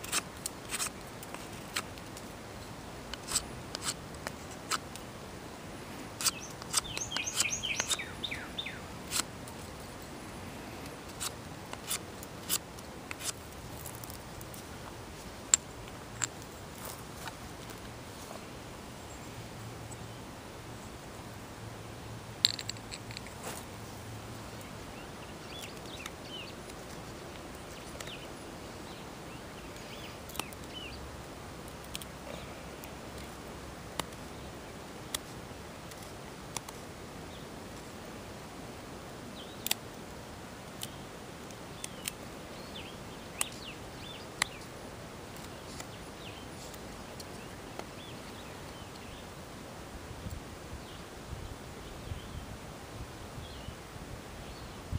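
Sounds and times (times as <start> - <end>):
steady outdoor hiss: 0.0 - 54.9
knife whittling wood clicks: 6.2 - 8.1
faint bird chirps: 6.2 - 8.9.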